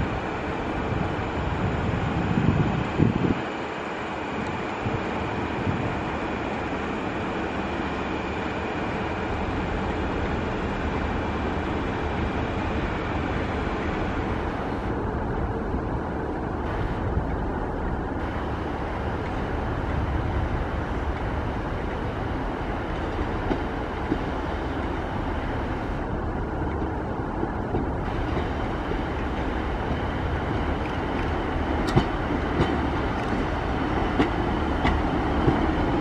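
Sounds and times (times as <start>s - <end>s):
diesel train engines running: 0.0s - 36.0s
wheels clicking over rail joints: 29.2s - 36.0s.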